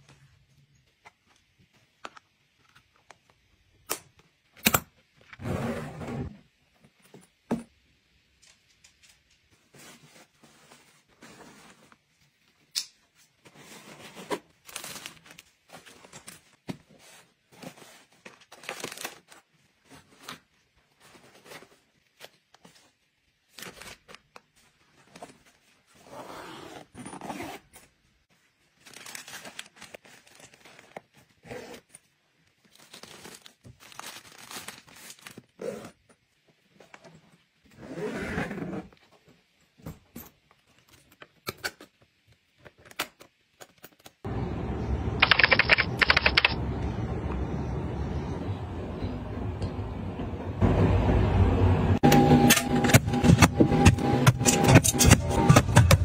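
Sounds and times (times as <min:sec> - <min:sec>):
fabric and plastic packets rustling: 0:09.5 - 0:26.0, 0:28.2 - 0:36.8.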